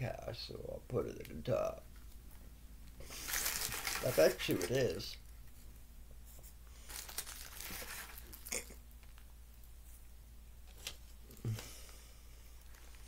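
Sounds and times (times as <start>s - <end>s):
dry plant matter crinkling: 3.0s - 5.2s, 6.8s - 9.2s, 12.6s - 13.0s.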